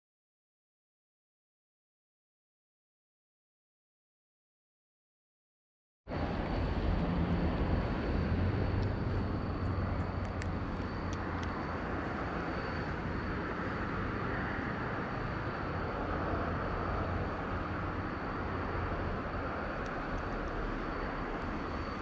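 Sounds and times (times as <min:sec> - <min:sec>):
distant engine rumble: 0:06.1 - 0:22.0
low hum: 0:06.1 - 0:22.0
thin steady high tone: 0:06.2 - 0:22.0
faint clicks: 0:10.2 - 0:11.6.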